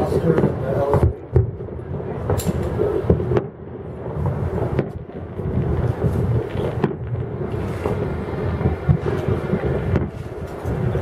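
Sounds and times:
distant fireworks bangs: 0.0 - 11.0
wind rumble on microphone: 0.0 - 11.0.

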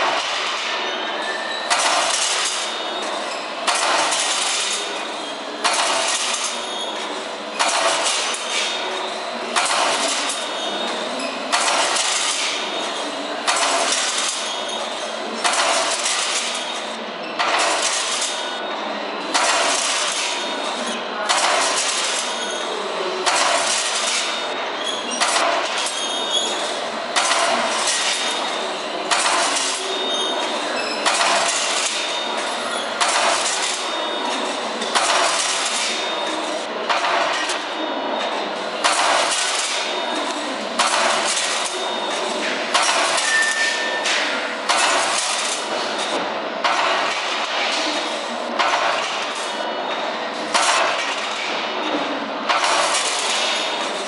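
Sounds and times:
steady mechanical clatter: 0.0 - 54.0
sharp metallic clack: 1.6 - 5.0, 5.6 - 6.7, 25.2 - 26.5, 27.2 - 37.8, 38.8 - 48.0, 48.6 - 49.6.

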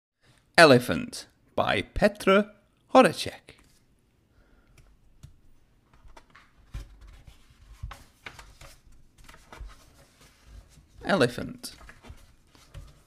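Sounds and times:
book pages turning: 3.6 - 3.9, 5.2 - 13.0.

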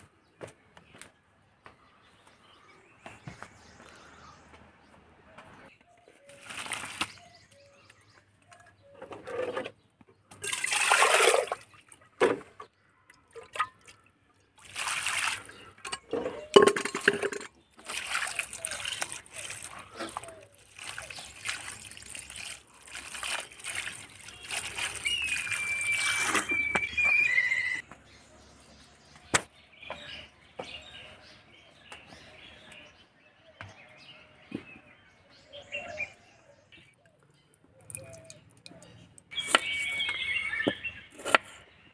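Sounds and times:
water pouring and splashing: 6.3 - 7.4, 10.3 - 12.6, 13.3 - 27.0, 37.8 - 40.3.

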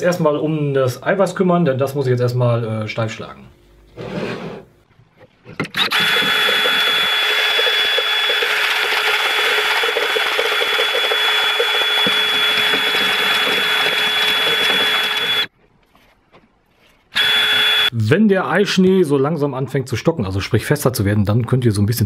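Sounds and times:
drill whisking egg whites: 5.8 - 15.5, 17.2 - 17.9.

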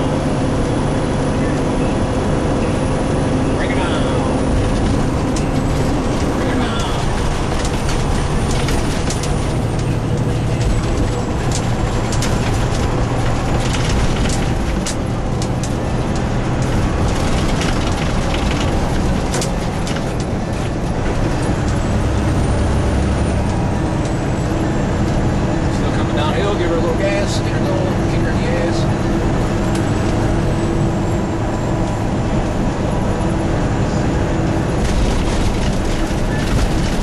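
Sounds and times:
road noise: 0.0 - 37.0
truck diesel engine drone: 0.0 - 37.0.

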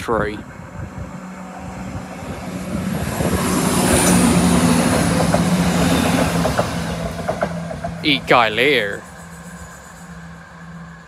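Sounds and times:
diesel train engine passing: 0.0 - 11.0
wheels on rails: 0.9 - 11.0
clicks from train wheels: 4.8 - 8.0.

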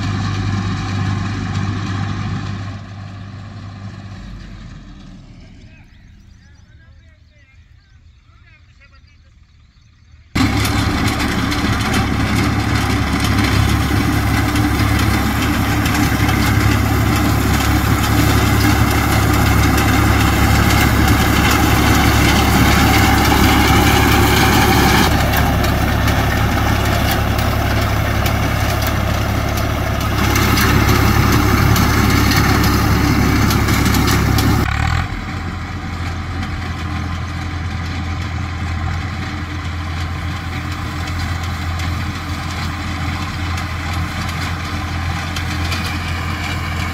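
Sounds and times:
tractor diesel engine running: 0.0 - 46.9
reaper binder mechanical noise: 10.4 - 34.7.

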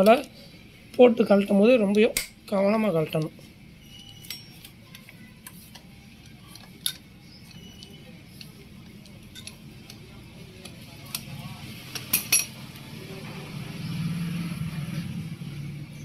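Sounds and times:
wrench clinking on bolts: 9.3 - 10.0.

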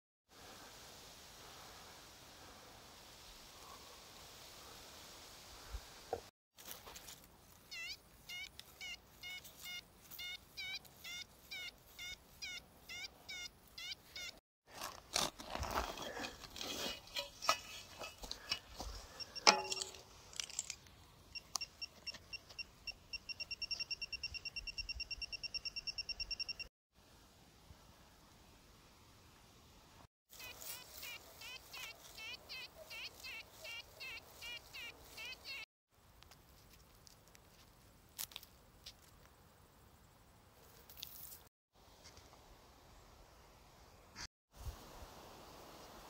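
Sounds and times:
soil digging and scraping: 6.6 - 12.5, 14.6 - 22.3, 40.6 - 42.2
metal detector tone: 19.2 - 20.0, 21.4 - 26.7
pinpointer rapid beeps: 21.4 - 26.7.

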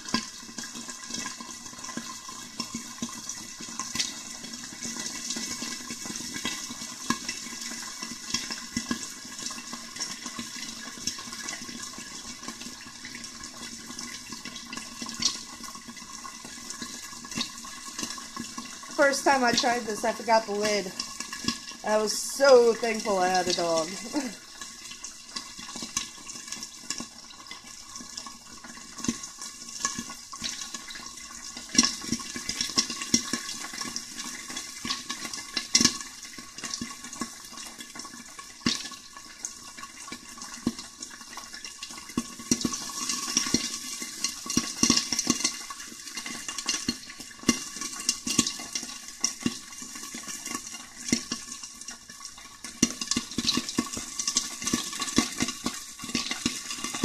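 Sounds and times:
oil sizzling: 0.0 - 57.0
popcorn popping: 41.8 - 51.6, 52.4 - 57.0.

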